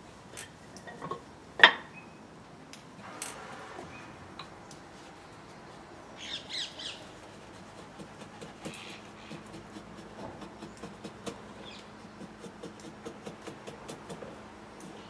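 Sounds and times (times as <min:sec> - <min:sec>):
draw knife shaving wood: 0:06.5 - 0:15.0.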